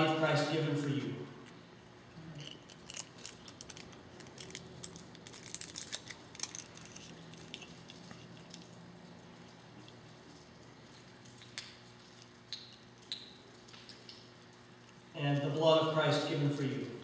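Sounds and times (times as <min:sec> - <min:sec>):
plastic film seal crinkling: 0:02.4 - 0:08.7.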